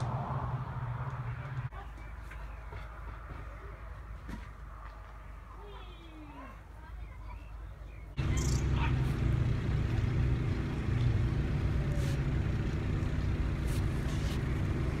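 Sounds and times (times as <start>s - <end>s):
low engine hum: 8.2s - 15.0s.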